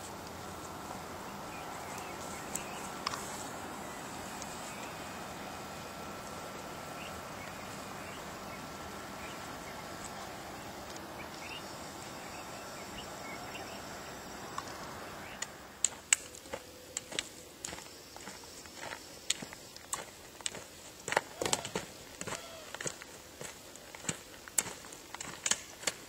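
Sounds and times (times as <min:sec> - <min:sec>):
faint insect drone: 0:00.0 - 0:26.0
footsteps on gravel: 0:00.0 - 0:26.0
trekking pole clicks: 0:14.5 - 0:17.8, 0:23.9 - 0:26.0.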